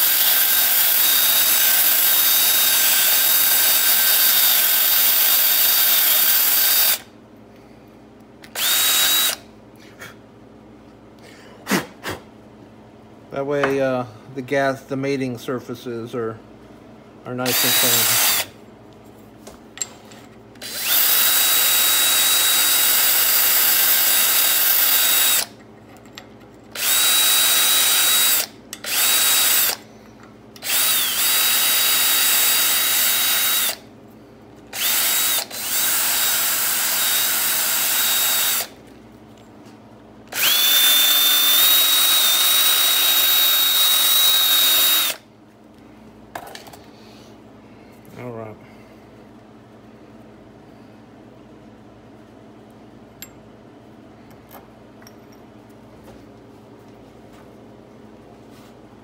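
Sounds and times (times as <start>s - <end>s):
electric drill whining: 0.0s - 7.1s, 8.4s - 9.4s, 17.5s - 18.5s, 20.6s - 25.5s, 26.8s - 29.8s, 30.6s - 33.8s, 34.7s - 38.8s, 40.3s - 45.2s.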